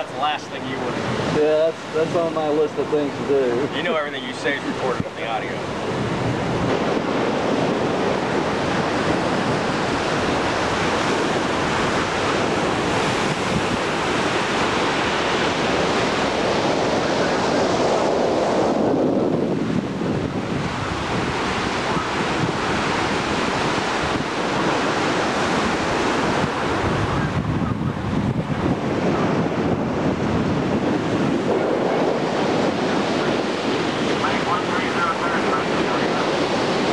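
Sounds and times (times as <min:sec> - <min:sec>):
sea waves washing: 0:00.0 - 0:36.9
wind rushing over microphone: 0:00.0 - 0:36.9.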